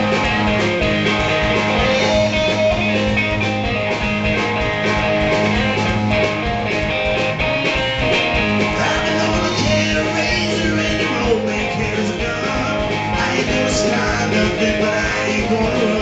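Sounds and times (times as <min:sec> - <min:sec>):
electric guitar: 0:00.0 - 0:16.0
steady drum beat: 0:00.0 - 0:16.0.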